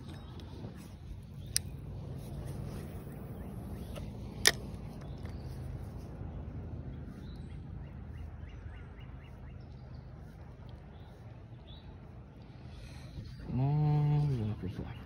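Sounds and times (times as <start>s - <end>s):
low hum: 0.0s - 15.0s
sharp click: 1.4s - 1.8s, 3.7s - 5.4s.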